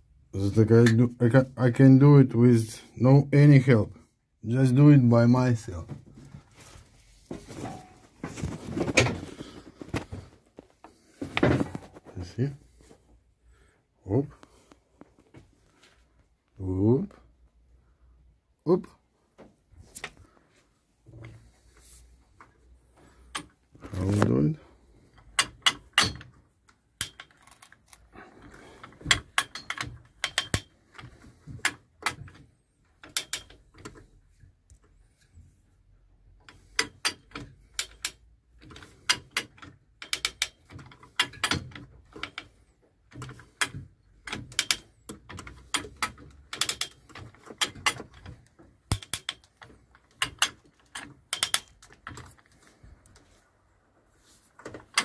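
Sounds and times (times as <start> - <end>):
sharp metallic clicks and knocks: 25.1 - 34.1, 36.4 - 53.2, 54.6 - 55.0.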